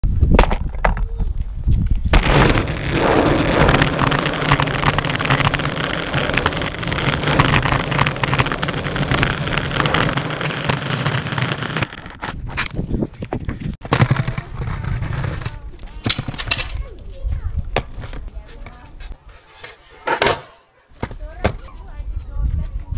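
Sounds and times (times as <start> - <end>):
skateboard wheels rolling on asphalt: 0.4 - 16.6.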